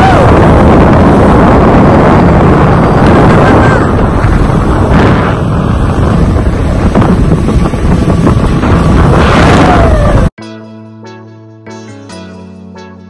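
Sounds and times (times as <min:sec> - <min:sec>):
boat wake rushing: 0:00.0 - 0:10.4
wind noise on microphone: 0:00.0 - 0:10.4
background music: 0:10.4 - 0:13.0.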